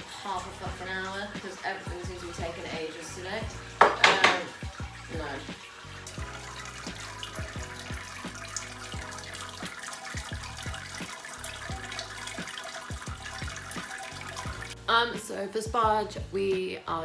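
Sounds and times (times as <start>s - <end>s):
liquid trickling: 0.0s - 14.9s
drops plopping into liquid: 3.8s - 4.9s.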